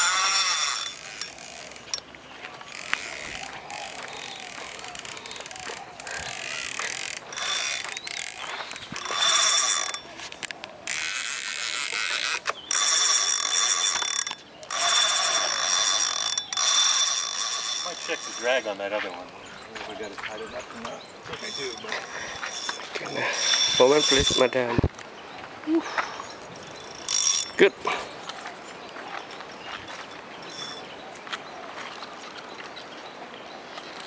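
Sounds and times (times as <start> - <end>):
fishing reel ratchet clicking: 0.0 - 2.0, 2.7 - 18.7, 21.4 - 24.6, 26.8 - 27.6.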